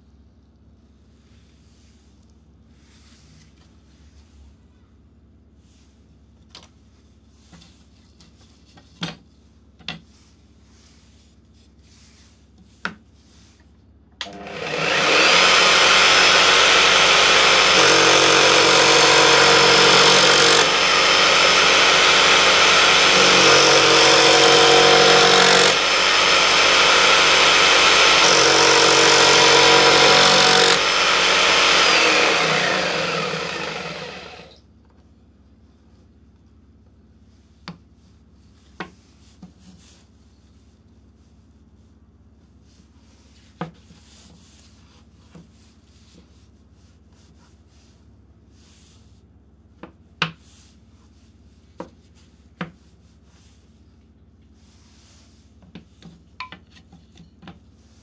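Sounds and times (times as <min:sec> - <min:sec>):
jigsaw motor whine: 0:14.2 - 0:34.6.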